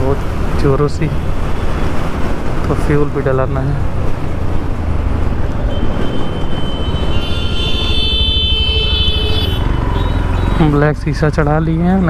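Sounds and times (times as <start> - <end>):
vehicle horn: 5.7 - 10.6.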